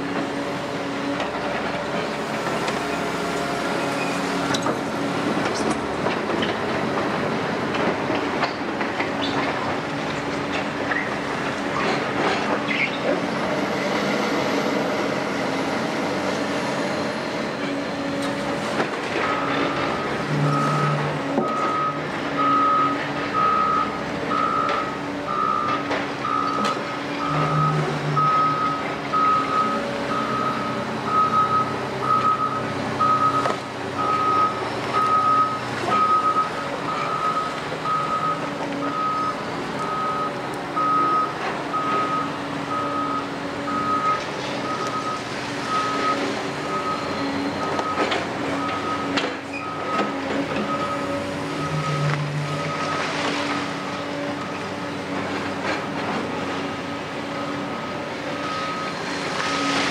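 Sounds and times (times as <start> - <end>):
diesel engines running: 0.0 - 59.9
reversing alarm beeping: 19.3 - 53.1, 57.4 - 59.8.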